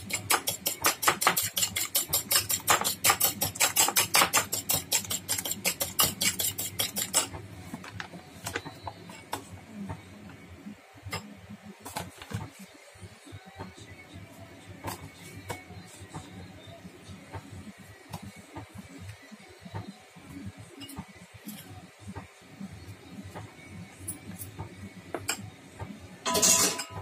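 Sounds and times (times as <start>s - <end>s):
spoon clinking against bowl: 26.3s - 27.0s.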